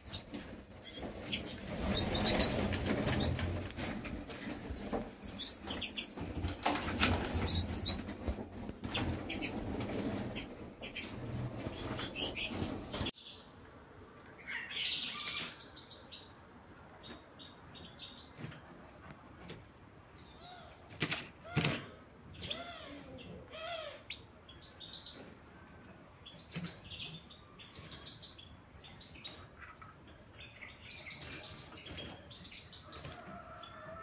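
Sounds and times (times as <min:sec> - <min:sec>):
wing flutters: 0:00.0 - 0:13.1.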